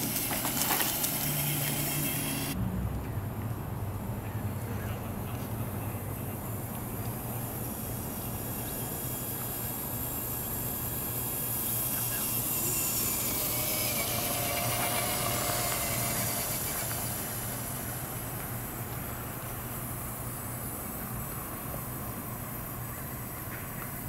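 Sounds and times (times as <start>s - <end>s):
steady hiss: 0.0s - 2.6s, 5.3s - 24.0s
toy car electric motor whining: 0.0s - 2.6s, 6.8s - 20.8s.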